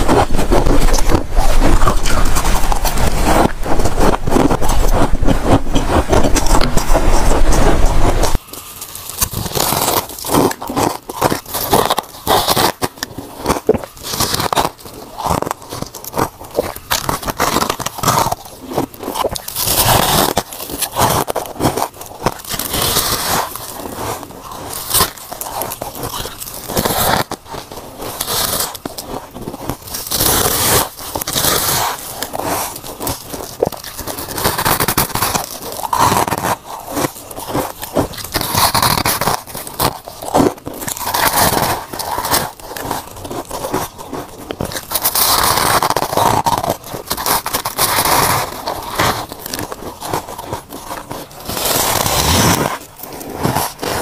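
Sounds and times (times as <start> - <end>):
crunching frost while chewing: 0.0 - 54.0.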